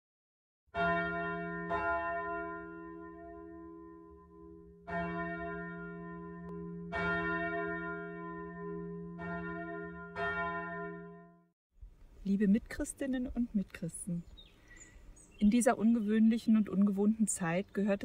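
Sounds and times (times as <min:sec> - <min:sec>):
church bell ringing: 0:00.7 - 0:11.5.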